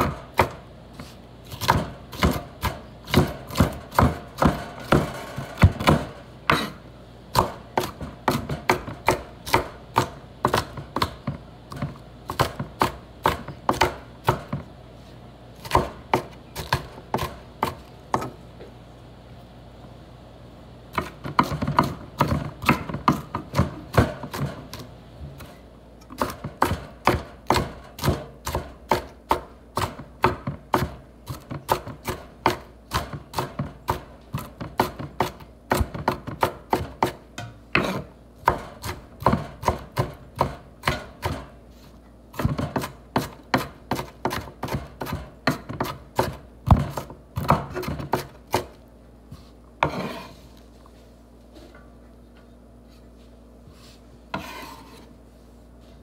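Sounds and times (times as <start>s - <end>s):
knife chopping on wooden board: 0.0s - 14.6s, 15.6s - 18.4s, 20.9s - 41.6s, 42.3s - 48.8s, 54.3s - 55.0s
scraping swish on cutting board: 49.3s - 51.7s, 52.8s - 56.0s.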